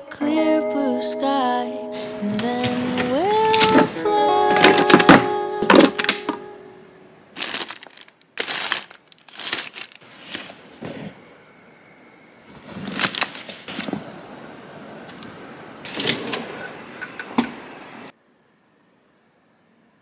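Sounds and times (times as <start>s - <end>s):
paper and plastic rustling: 2.0s - 6.4s, 7.4s - 11.2s, 12.5s - 14.0s
plastic bag rustling: 2.0s - 6.4s, 7.3s - 11.1s, 12.6s - 14.0s.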